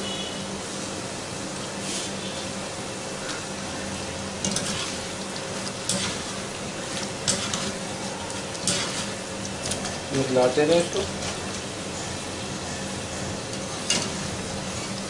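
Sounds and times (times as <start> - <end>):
dough frying sizzle: 0.6 - 15.0
skimmer scraping against pan: 4.4 - 12.2.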